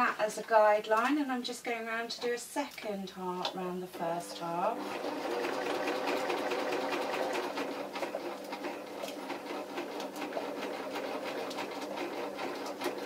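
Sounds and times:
sewing machine clicking: 4.8s - 13.0s.

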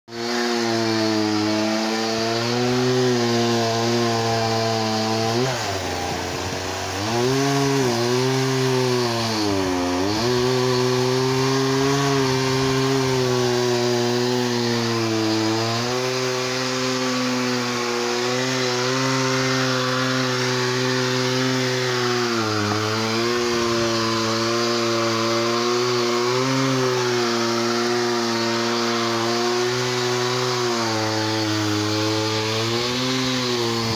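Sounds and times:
chainsaw engine running: 0.1s - 33.9s.

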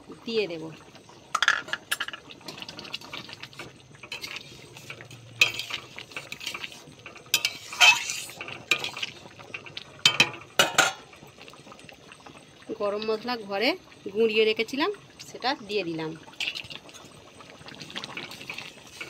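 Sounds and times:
metal spoon scraping a pan: 1.4s - 11.1s, 16.4s - 17.2s, 17.9s - 19.0s.

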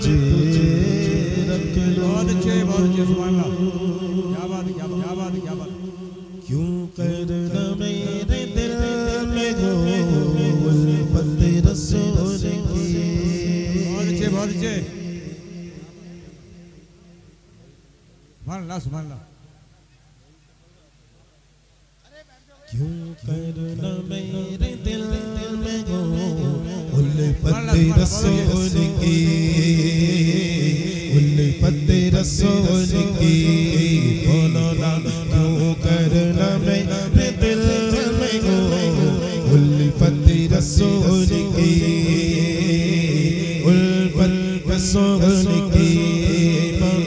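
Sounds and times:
man singing unaccompanied: 0.0s - 17.8s, 22.0s - 47.0s.

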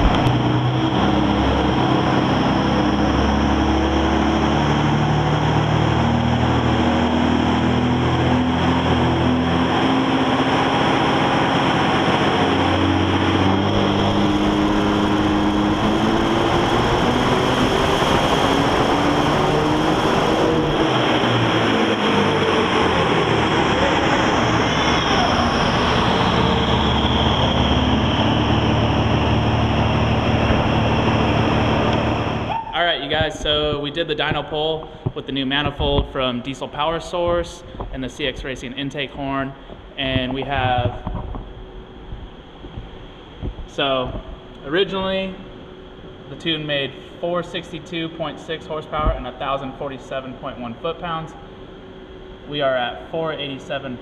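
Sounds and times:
diesel engine at full throttle: 0.0s - 54.0s
turbo whistle falling in pitch: 32.4s - 32.8s.

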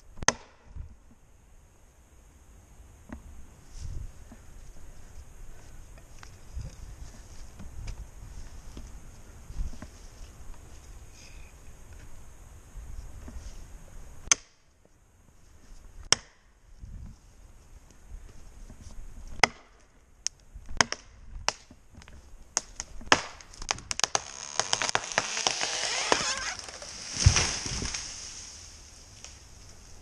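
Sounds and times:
tree wood cracking: 20.8s - 30.0s
tree trunk hitting ground: 22.6s - 29.4s
rush of branches: 24.0s - 30.0s.

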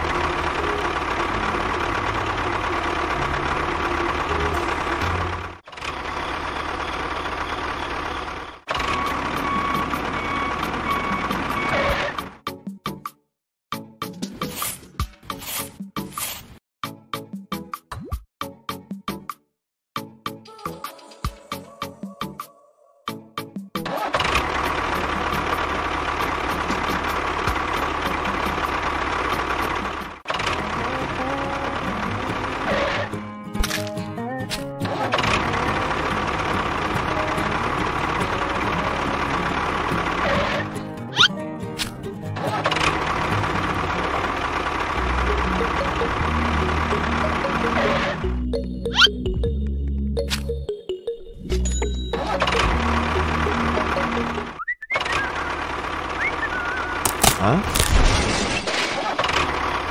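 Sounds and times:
vehicle engine running: 0.0s - 12.4s, 23.8s - 34.2s, 34.8s - 49.6s, 51.6s - 58.1s, 59.0s - 59.9s.

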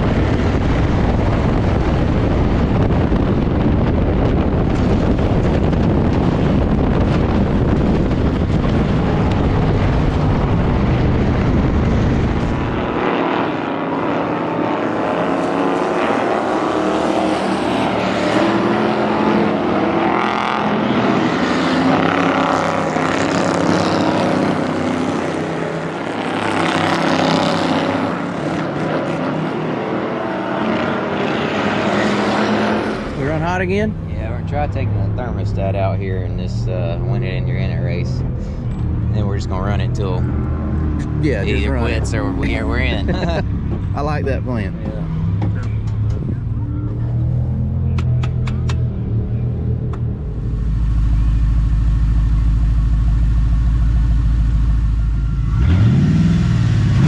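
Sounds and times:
race car engine inside car: 0.0s - 57.0s
race cars revving past: 5.9s - 35.9s, 55.3s - 57.0s.

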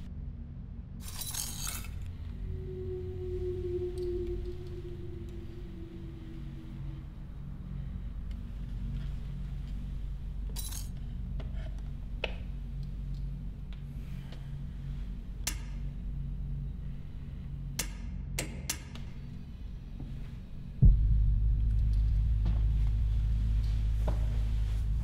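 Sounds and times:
low hum: 0.0s - 25.0s
loud low drone: 1.9s - 17.7s, 19.4s - 25.0s
deep boom: 20.8s - 25.0s.

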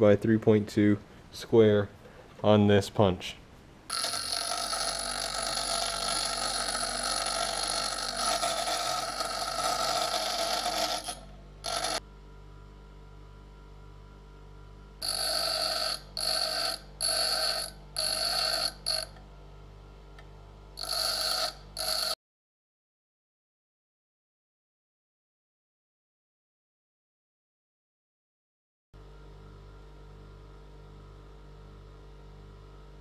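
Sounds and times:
metal grinding on wheel: 3.9s - 12.0s, 15.0s - 19.2s, 20.8s - 22.2s
bench grinder motor running: 3.9s - 22.2s.

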